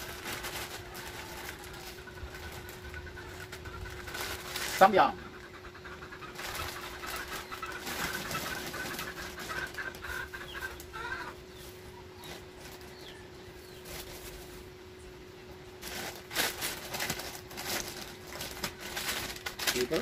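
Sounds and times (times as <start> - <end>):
plastic packaging crinkling: 0.0 - 4.9, 15.8 - 20.0
steady hum: 0.0 - 20.0.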